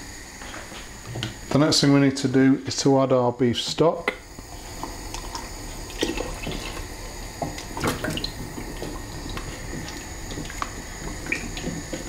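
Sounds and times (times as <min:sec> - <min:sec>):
liquid pouring into a pot: 0:04.2 - 0:12.0
wooden spoon stirring: 0:04.6 - 0:12.0.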